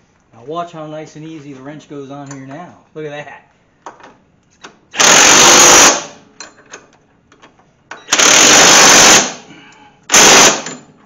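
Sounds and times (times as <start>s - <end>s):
impact wrench hammering: 8.0s - 9.4s, 10.1s - 10.9s.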